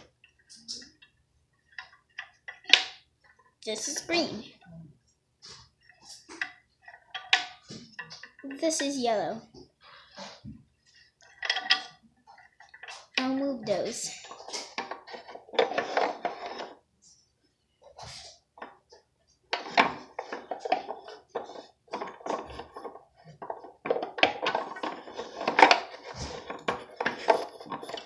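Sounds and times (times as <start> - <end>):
wooden beads clacking: 5.8 - 8.6, 11.2 - 16.8, 19.5 - 28.0.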